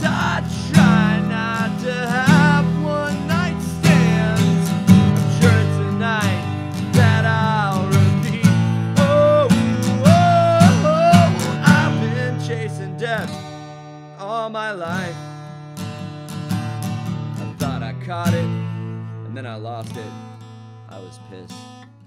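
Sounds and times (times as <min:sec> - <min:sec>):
man singing: 0:00.0 - 0:13.5, 0:14.2 - 0:15.4, 0:17.5 - 0:20.3
strummed acoustic guitar: 0:00.0 - 0:22.0.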